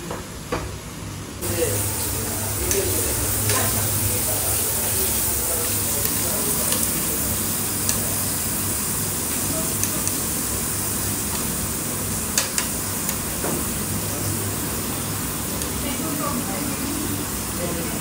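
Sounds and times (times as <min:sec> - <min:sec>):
meat sizzling on a grill: 0:01.4 - 0:18.0
utensils clicking: 0:07.8 - 0:08.2.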